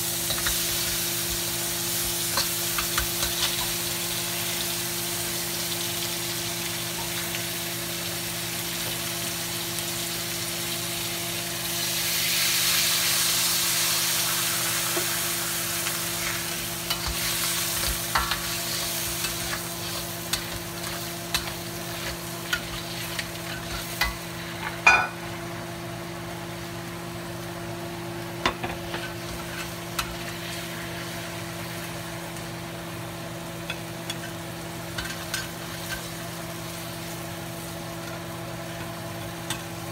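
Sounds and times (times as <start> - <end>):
crabs sizzling in a wok: 0.0 - 39.9
metal spatula scraping wok: 16.9 - 24.8.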